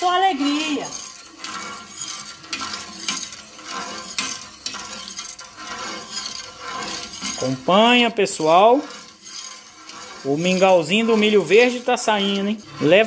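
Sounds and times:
metal spoon scraping a pot: 0:00.0 - 0:13.0.

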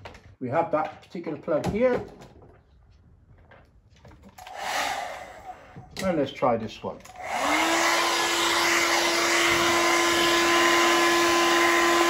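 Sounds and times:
hair dryer motor whine: 0:04.4 - 0:05.8, 0:07.1 - 0:12.0.

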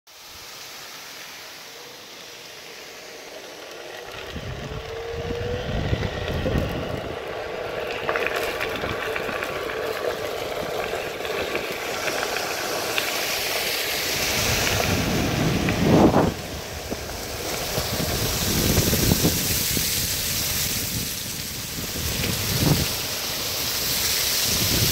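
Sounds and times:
water spraying and splashing: 0:00.1 - 0:06.9, 0:07.5 - 0:24.9
electric motor whining: 0:01.8 - 0:09.6
wind on microphone: 0:04.1 - 0:07.4, 0:13.9 - 0:24.9.

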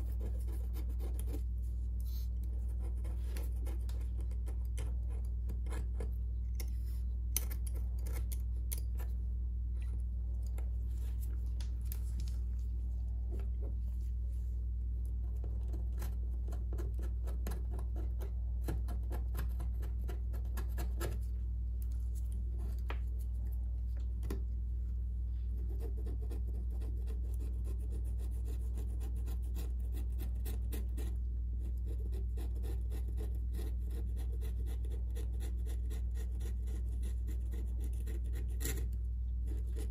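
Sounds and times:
steady low hum: 0:00.0 - 0:39.9
metal pry tool scraping: 0:03.0 - 0:09.2, 0:38.2 - 0:39.9.

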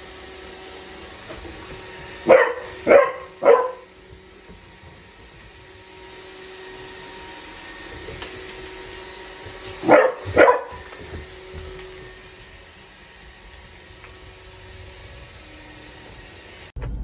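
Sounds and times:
robot vacuum cleaner hum: 0:00.0 - 0:16.7
puppy barking: 0:02.2 - 0:03.9, 0:09.8 - 0:11.0.

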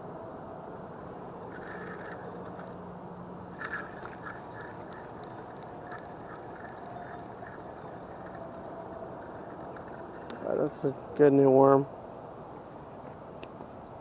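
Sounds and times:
outdoor background hiss: 0:00.0 - 0:14.0
faint clicks: 0:03.6 - 0:10.4.

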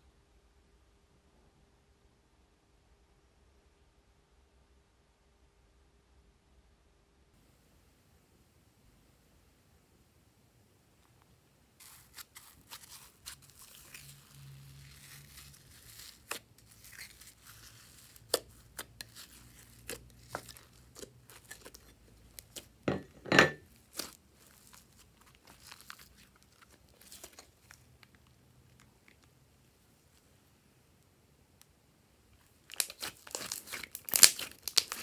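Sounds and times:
slime crackling and popping: 0:11.8 - 0:22.8, 0:23.7 - 0:29.3, 0:32.4 - 0:35.0.

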